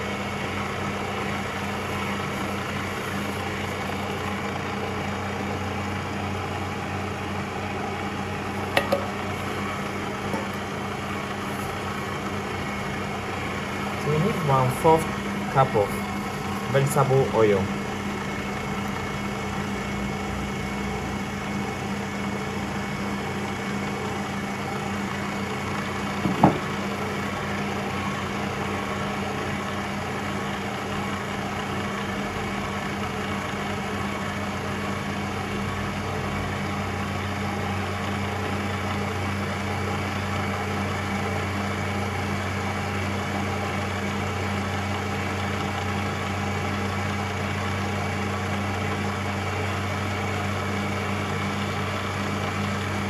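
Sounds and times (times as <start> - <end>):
stand mixer motor running: 0.0 - 53.0
brief knock: 26.2 - 26.7.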